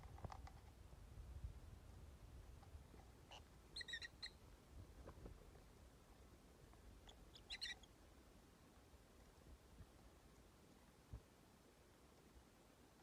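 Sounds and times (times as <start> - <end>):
bird chirping: 3.3 - 4.4, 7.0 - 7.9.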